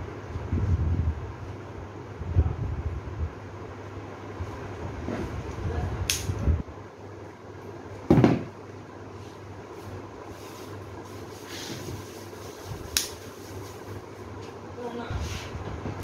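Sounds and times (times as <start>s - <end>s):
steady low hum: 0.0s - 16.0s
scissors snipping stem: 6.1s - 6.3s, 13.0s - 13.2s.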